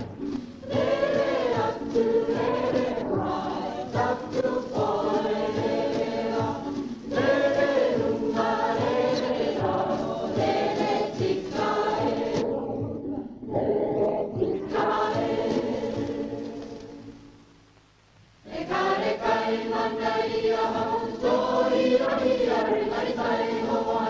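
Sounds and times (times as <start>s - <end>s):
choir singing: 0.0s - 17.1s, 18.4s - 24.0s.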